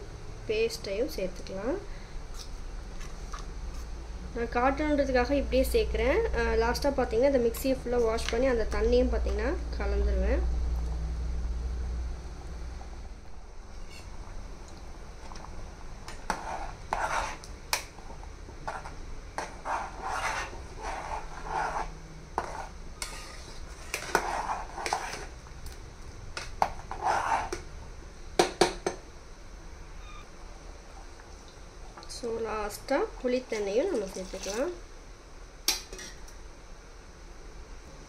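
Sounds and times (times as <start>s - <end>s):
metal ladle scraping a pot: 13.7s - 14.2s, 16.0s - 17.5s, 18.6s - 25.3s, 26.4s - 27.6s.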